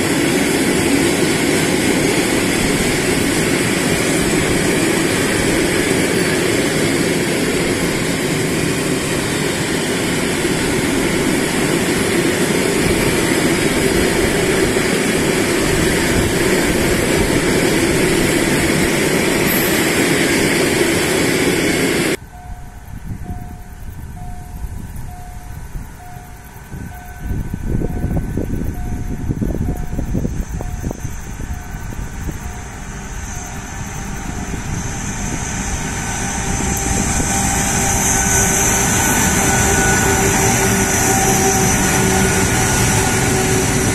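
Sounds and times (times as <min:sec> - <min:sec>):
train wheels clattering on rails: 0:00.0 - 0:43.9
rising noise: 0:26.5 - 0:43.9.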